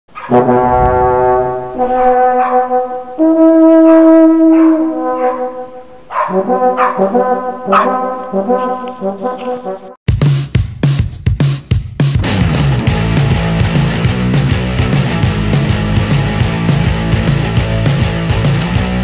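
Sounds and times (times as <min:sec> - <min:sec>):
brass fanfare music: 0:00.3 - 0:10.0.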